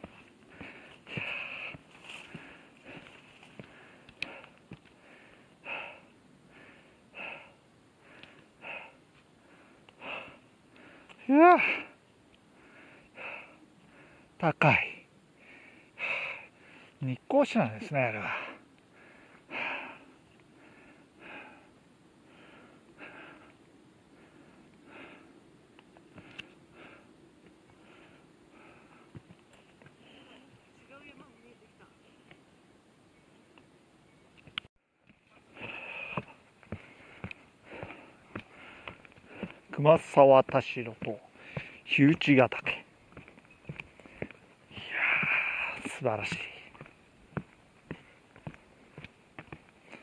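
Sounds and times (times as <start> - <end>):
person breathing heavily: 0.0 - 14.4, 15.3 - 17.0, 18.2 - 25.4, 26.1 - 27.1, 27.7 - 30.6, 35.3 - 39.7, 41.2 - 41.9, 44.0 - 49.0.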